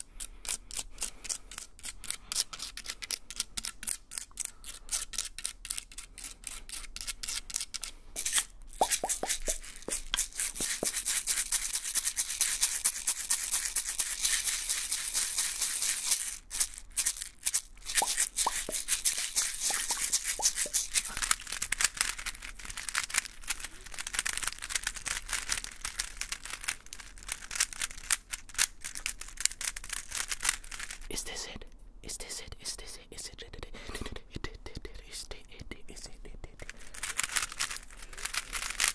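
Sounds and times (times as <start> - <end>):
puzzle cube clicking: 2.4 - 12.7, 14.3 - 31.0
rapid tapping and scratching: 8.7 - 14.7, 17.8 - 22.1.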